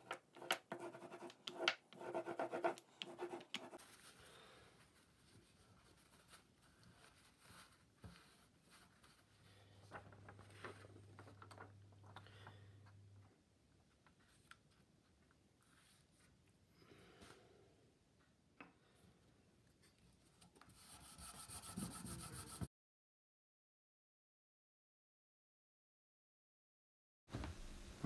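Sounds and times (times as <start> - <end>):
paper rubbing and rustling: 4.8 - 11.8.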